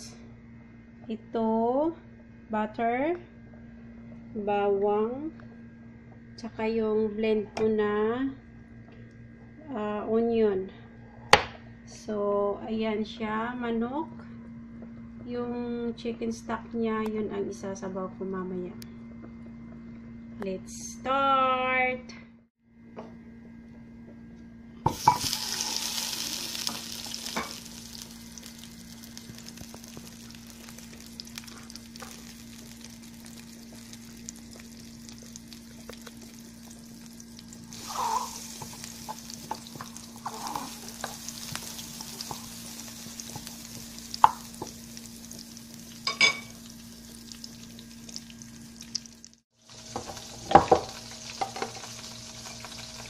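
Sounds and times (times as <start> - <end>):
butter sizzling in frying pan: 24.9 - 53.0.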